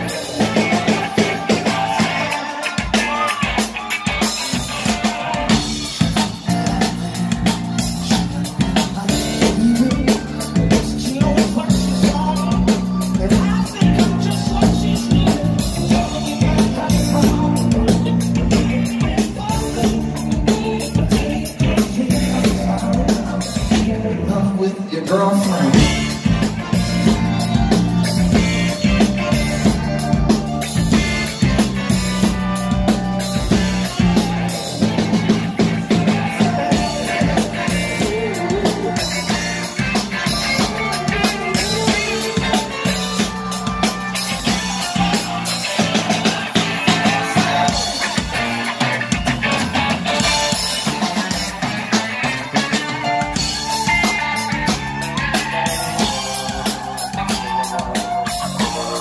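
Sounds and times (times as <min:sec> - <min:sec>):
drum kit: 0:00.0 - 0:59.0
electric guitar: 0:00.0 - 0:59.0
horns: 0:25.4 - 0:59.0.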